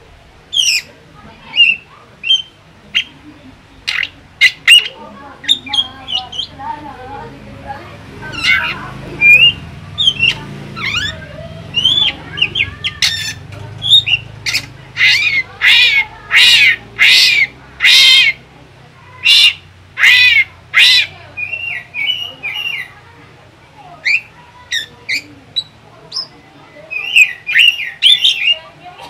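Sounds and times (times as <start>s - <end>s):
bird chirps and whistles: 0.5s - 0.9s, 1.5s - 3.1s, 8.4s - 11.2s, 26.9s - 28.6s
bird raspy calls: 0.5s - 3.2s, 3.8s - 6.6s, 8.2s - 18.5s, 19.1s - 23.1s, 23.9s - 28.8s.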